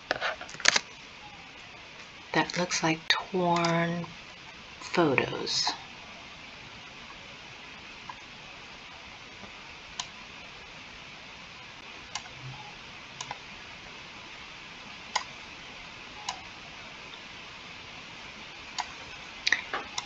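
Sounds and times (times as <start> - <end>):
steady hiss: 0.0 - 20.0
computer mouse clicking: 12.1 - 12.3, 13.2 - 13.4, 16.2 - 16.4.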